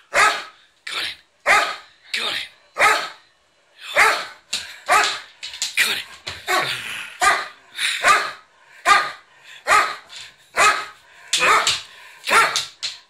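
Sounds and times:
dog barking: 0:00.1 - 0:00.6, 0:01.4 - 0:01.9, 0:02.8 - 0:03.2, 0:03.9 - 0:05.3, 0:06.5 - 0:12.7.

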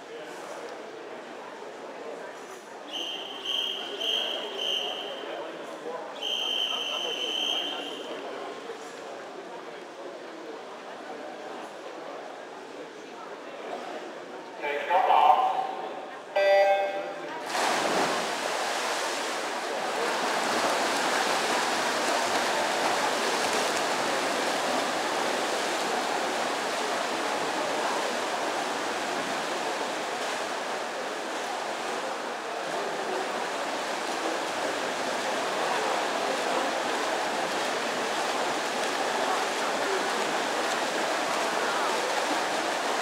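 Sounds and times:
swimmers splashing in echoing pool: 0:00.0 - 0:43.0.

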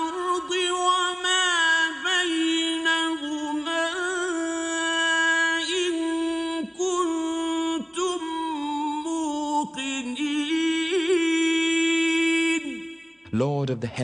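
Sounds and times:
man chanting a recitation: 0:09.6 - 0:14.0.

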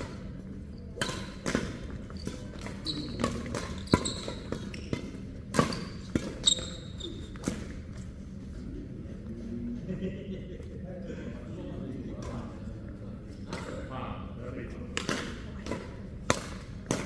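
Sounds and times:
shoes squeaking on court: 0:00.1 - 0:08.1
racket hitting shuttlecock: 0:00.9 - 0:06.4, 0:15.0 - 0:17.0.

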